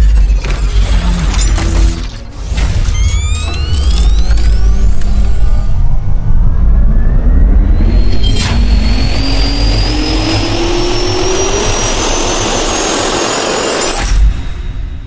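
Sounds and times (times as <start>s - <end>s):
whoosh: 1.6s - 15.0s
jet turbine spooling up: 3.0s - 14.0s.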